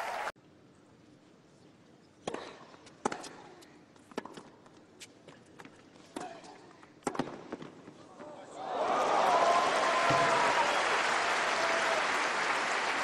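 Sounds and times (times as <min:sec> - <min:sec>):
racket striking tennis ball: 0:06.1 - 0:07.7.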